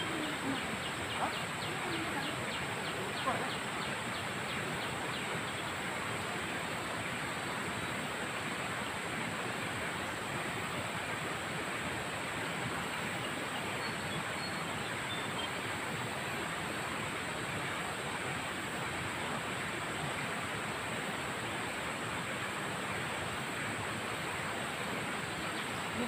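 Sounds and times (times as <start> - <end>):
river rushing: 0.0 - 26.0
faint bird chirps: 12.9 - 15.6.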